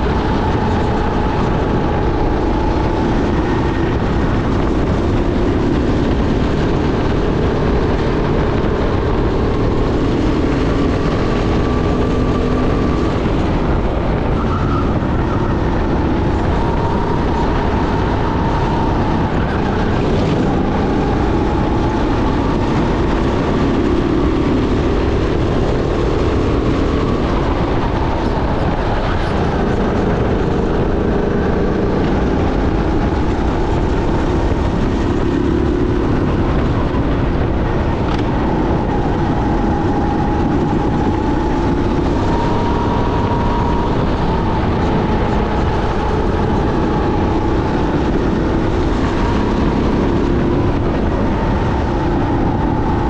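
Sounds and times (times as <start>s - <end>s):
go-kart engine running: 0.0s - 53.0s
wind and tyre noise: 0.0s - 53.0s.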